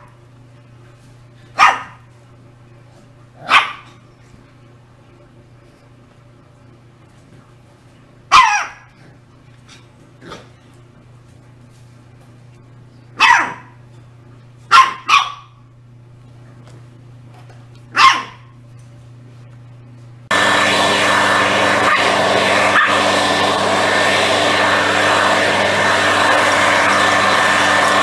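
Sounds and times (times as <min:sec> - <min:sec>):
puppy barking: 0:01.6 - 0:02.0, 0:03.4 - 0:04.0, 0:08.3 - 0:09.0, 0:13.2 - 0:13.8, 0:14.7 - 0:15.6, 0:17.9 - 0:18.6
leaf blower engine running: 0:20.3 - 0:28.0.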